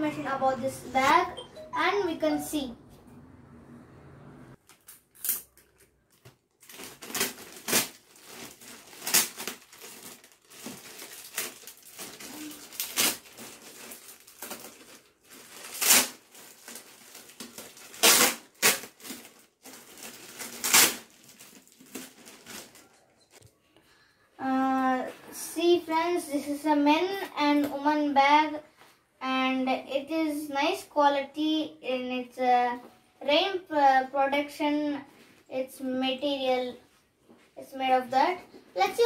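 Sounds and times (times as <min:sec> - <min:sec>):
plastic packaging crinkling: 0:04.6 - 0:23.4.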